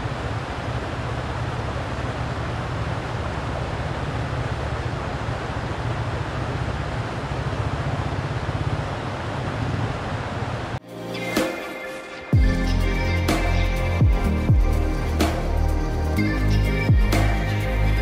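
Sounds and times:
stream water rushing: 0:00.0 - 0:12.3.

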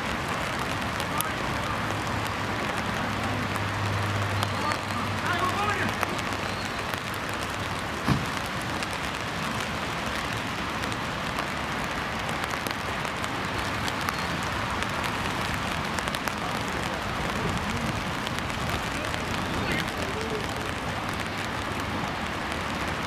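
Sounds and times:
steady rain: 0:00.0 - 0:23.0
thump: 0:08.0 - 0:08.4.

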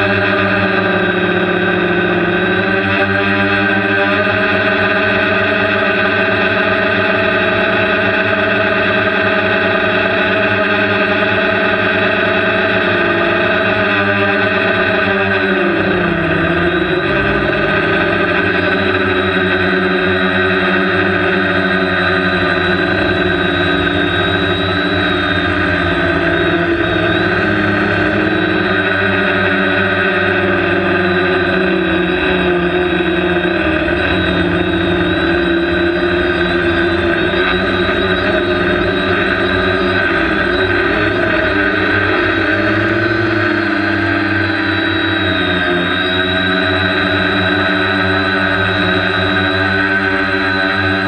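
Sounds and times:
drone propellers buzzing: 0:00.0 - 0:51.0.

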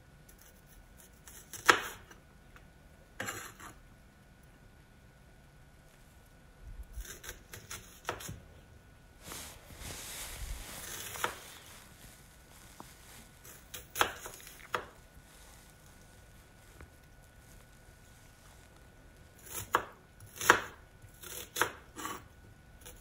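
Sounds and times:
knife chopping on cutting board: 0:01.3 - 0:02.1, 0:07.0 - 0:08.4, 0:10.8 - 0:11.4, 0:13.5 - 0:14.9, 0:19.4 - 0:22.2
soft rustling: 0:09.1 - 0:19.4.

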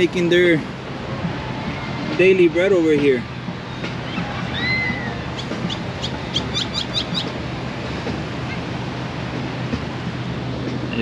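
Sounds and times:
surf washing: 0:00.0 - 0:11.0
wind: 0:00.0 - 0:11.0
bird whistled call: 0:04.1 - 0:07.3.

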